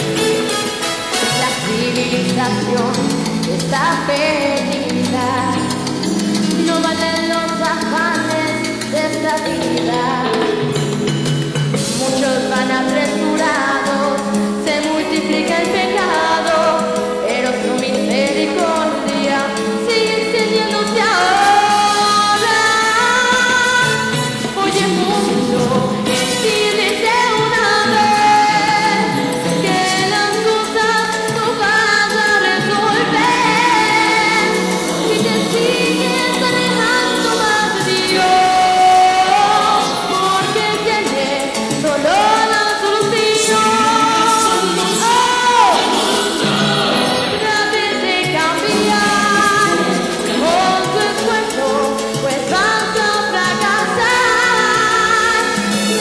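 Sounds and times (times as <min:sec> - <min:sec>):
backing track with drums and bass: 0:00.0 - 0:13.5
musical accompaniment: 0:00.0 - 0:56.0
girl singing into a microphone: 0:01.3 - 0:10.6, 0:11.9 - 0:46.3, 0:47.0 - 0:56.0.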